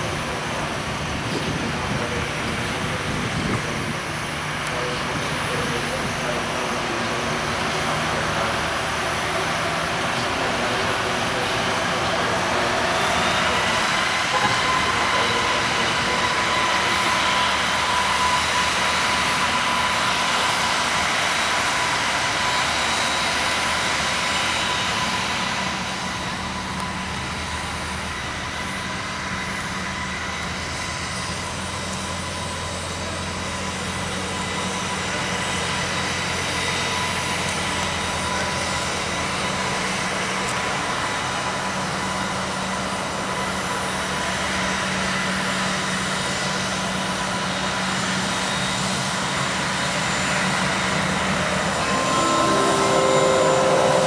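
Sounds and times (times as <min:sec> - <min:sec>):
jet engines whining: 0:50.9 - 0:54.0.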